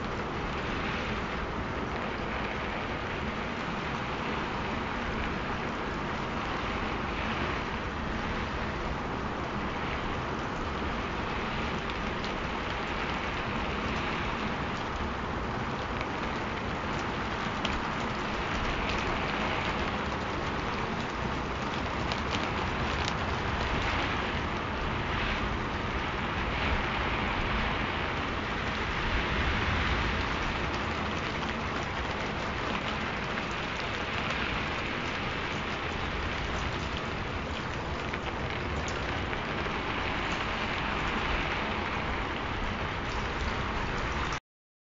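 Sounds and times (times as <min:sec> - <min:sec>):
steady rain hiss: 0:00.0 - 0:44.4
raindrop ticks: 0:09.5 - 0:25.9, 0:28.1 - 0:44.4.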